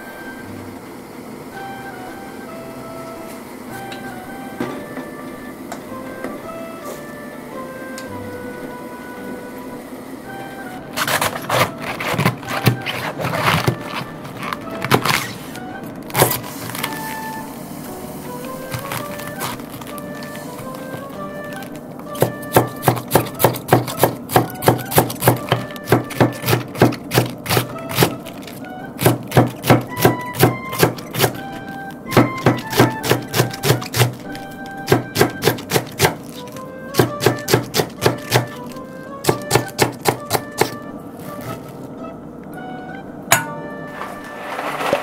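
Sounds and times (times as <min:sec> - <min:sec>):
light background music: 0:00.0 - 0:45.0
knife chopping on wooden board: 0:22.2 - 0:28.2, 0:29.0 - 0:31.4, 0:32.1 - 0:34.2, 0:34.9 - 0:36.3, 0:37.0 - 0:38.6, 0:39.2 - 0:40.8.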